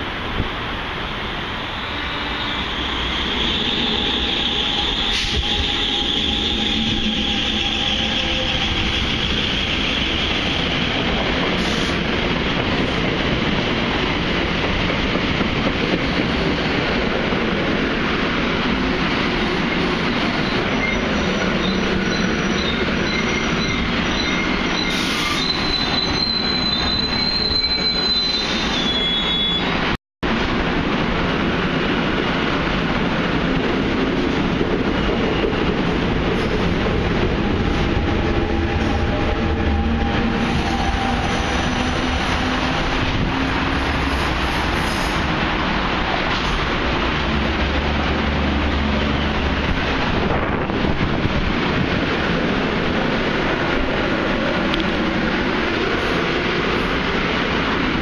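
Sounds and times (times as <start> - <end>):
train wheels on rails: 0.0 - 58.0
high wheel squeal: 1.7 - 10.3, 20.3 - 29.8.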